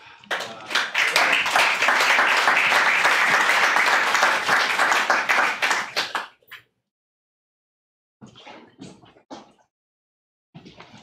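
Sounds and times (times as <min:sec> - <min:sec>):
audience applauding: 0:00.3 - 0:06.4.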